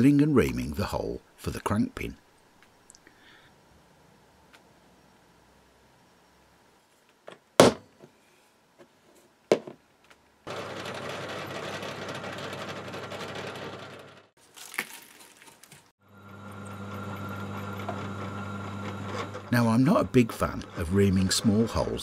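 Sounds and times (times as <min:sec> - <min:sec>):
pillar drill drilling steel: 0:16.2 - 0:22.0.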